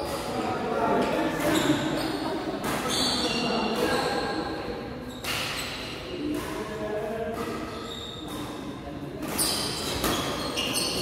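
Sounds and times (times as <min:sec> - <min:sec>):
echoing voices: 0:00.0 - 0:11.0
shoes squeaking on court: 0:01.4 - 0:04.4, 0:05.0 - 0:06.5, 0:07.4 - 0:11.0
rackets striking shuttlecock: 0:05.2 - 0:11.0.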